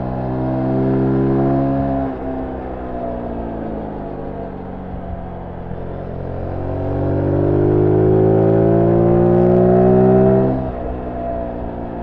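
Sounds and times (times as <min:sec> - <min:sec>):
motorcycle engine revving: 0:06.4 - 0:10.9.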